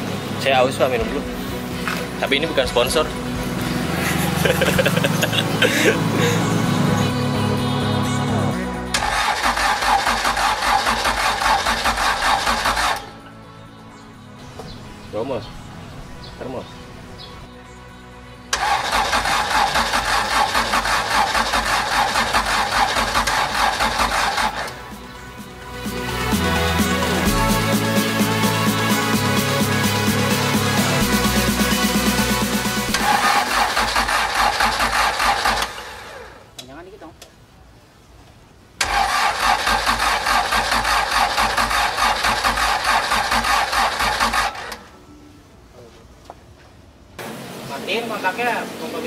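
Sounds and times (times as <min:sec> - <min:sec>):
engine cranking on starter motor: 0:08.9 - 0:13.2, 0:18.5 - 0:24.8, 0:32.9 - 0:36.4, 0:38.8 - 0:44.9.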